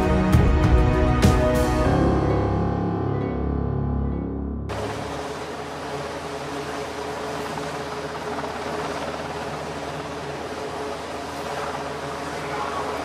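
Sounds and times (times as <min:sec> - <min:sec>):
low hum: 0:01.8 - 0:13.0
machinery noise: 0:04.7 - 0:13.0.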